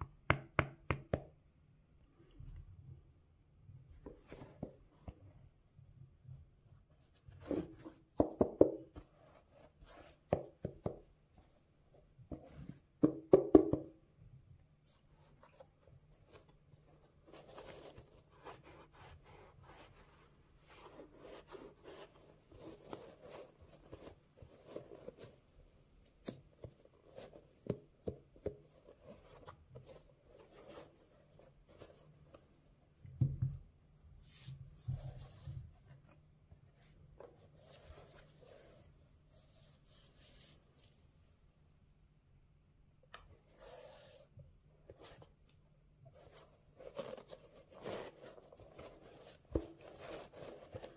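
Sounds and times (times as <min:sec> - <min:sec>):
knocks and taps on sneakers: 0:13.0 - 0:14.0
rubbing and rustling: 0:14.8 - 0:33.0, 0:46.1 - 0:50.9
cloth rubbing rubber sole: 0:46.1 - 0:50.9.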